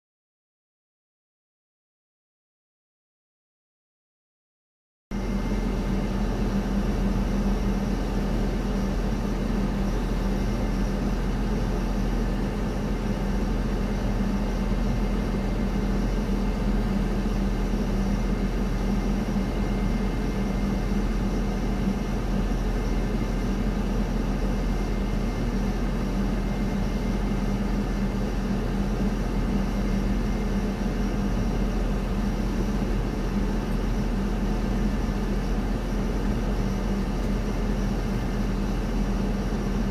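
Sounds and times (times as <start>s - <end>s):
parked airliner low hum: 5.1s - 39.9s.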